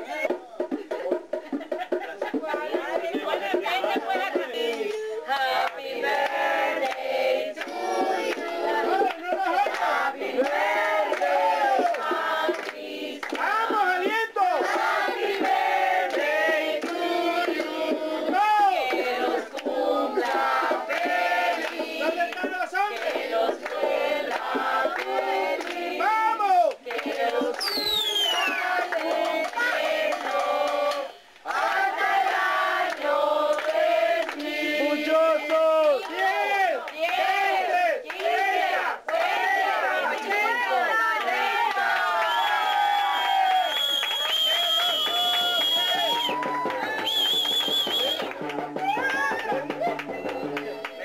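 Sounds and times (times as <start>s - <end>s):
people clapping: 0.2s - 51.0s
group singing: 2.0s - 42.4s.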